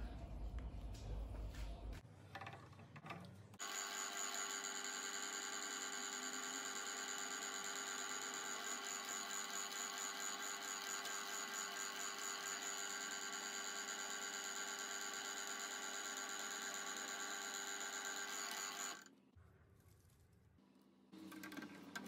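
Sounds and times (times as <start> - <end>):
drill press whining: 3.6 - 19.1.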